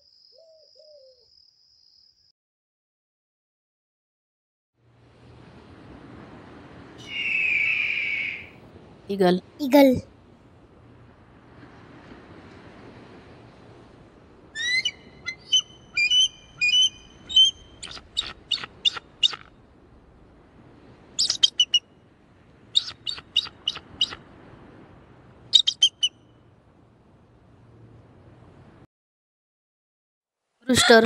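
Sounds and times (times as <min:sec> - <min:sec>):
eagle high piping calls: 0:07.0 - 0:08.6, 0:14.6 - 0:19.5, 0:21.2 - 0:21.8, 0:22.7 - 0:24.2, 0:25.5 - 0:26.2.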